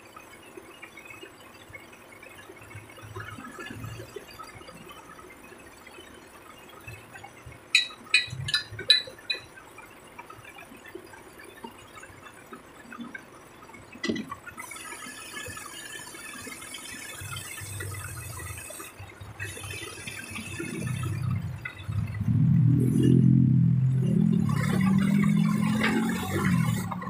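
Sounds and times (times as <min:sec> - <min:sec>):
sharp metallic clanks: 0:07.7 - 0:09.5.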